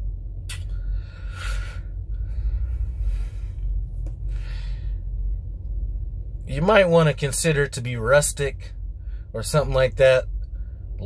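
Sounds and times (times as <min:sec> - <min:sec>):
low rumble inside truck cab: 0:00.0 - 0:11.0
man breathing through nose: 0:00.7 - 0:05.1.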